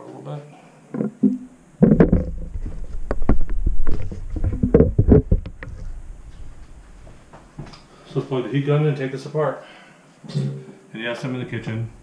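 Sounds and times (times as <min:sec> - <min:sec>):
camera handling knocks and scrapes: 0:01.0 - 0:05.8.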